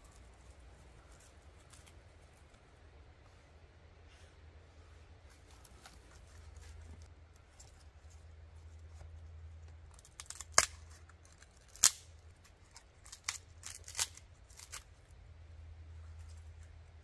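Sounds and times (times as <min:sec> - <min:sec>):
firewood snapping and cracking: 0:09.9 - 0:14.8.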